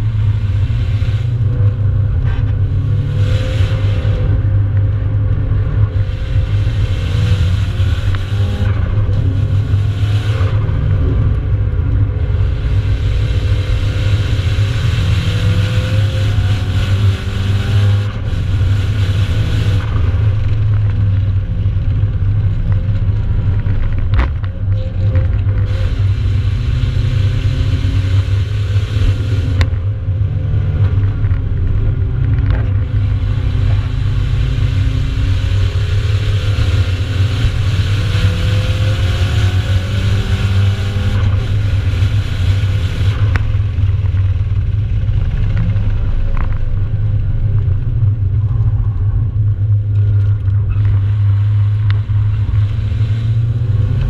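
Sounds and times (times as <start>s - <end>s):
car engine revving: 0.0s - 54.0s
road and wind noise: 0.0s - 54.0s.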